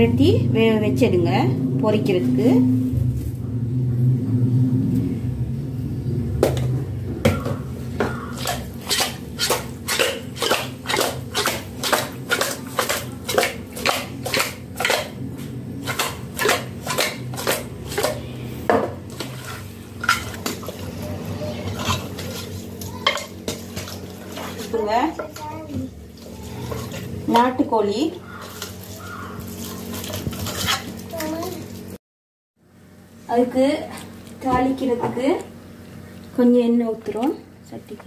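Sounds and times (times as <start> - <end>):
low hum: 0.0 - 25.0
metal pot knocking and rattling: 7.3 - 15.2.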